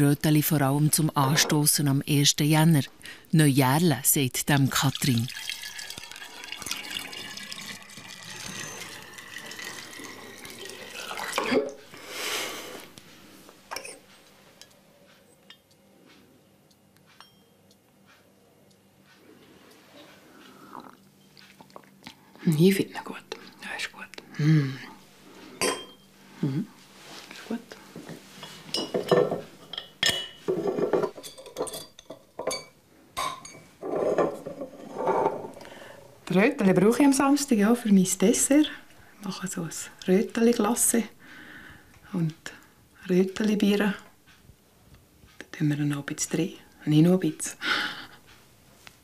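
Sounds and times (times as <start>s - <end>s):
liquid pouring into bottle: 4.8s - 11.8s
glass bottles clinking: 5.0s - 11.8s, 25.6s - 26.0s, 28.7s - 35.5s.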